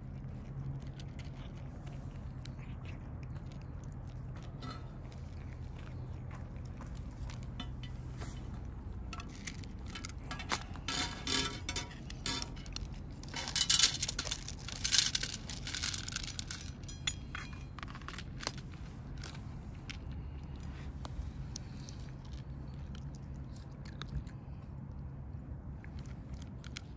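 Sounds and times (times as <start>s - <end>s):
kibble clicking against dish: 0.1s - 18.6s.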